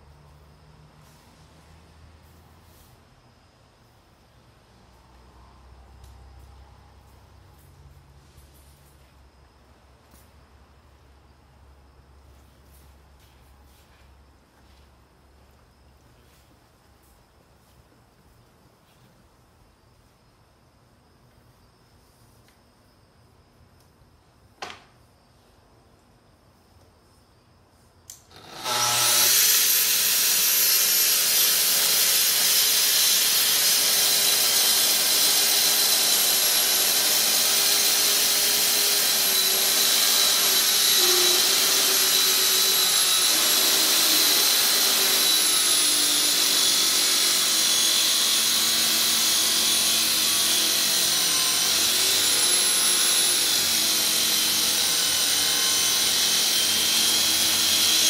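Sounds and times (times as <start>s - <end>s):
track saw cutting wood: 28.2s - 58.0s
dust extractor running: 28.3s - 58.0s.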